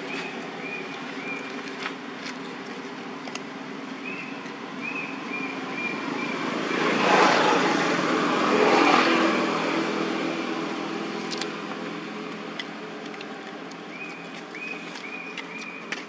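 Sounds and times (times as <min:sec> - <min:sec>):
vehicle driving past: 0:05.9 - 0:11.2.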